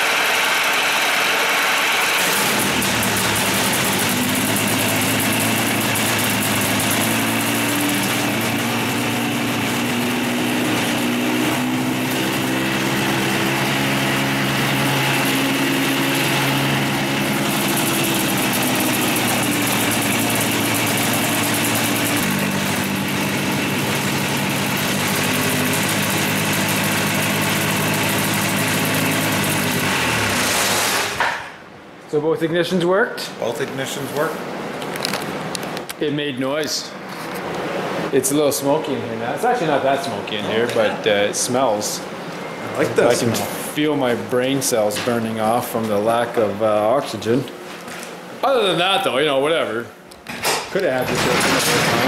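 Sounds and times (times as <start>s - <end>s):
two-stroke aircraft engine running: 0.0s - 31.3s.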